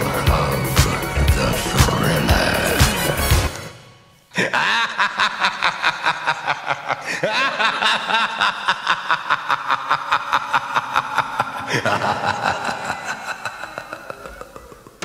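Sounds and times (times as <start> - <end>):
person laughing rapidly: 4.3 - 15.0.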